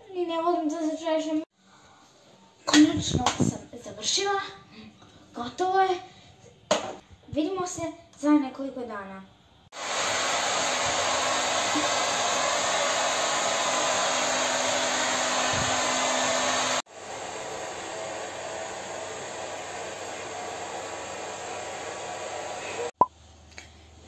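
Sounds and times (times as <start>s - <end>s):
hair dryer blowing: 9.7s - 23.0s.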